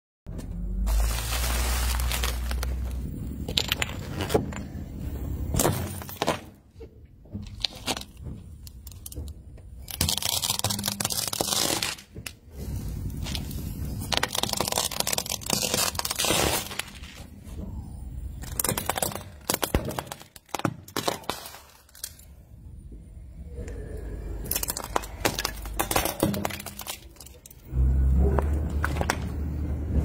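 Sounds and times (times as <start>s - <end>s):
plastic bottle crackling and crunching: 0.8s - 4.8s, 7.4s - 12.4s, 13.1s - 17.3s, 18.4s - 22.3s, 24.4s - 27.6s.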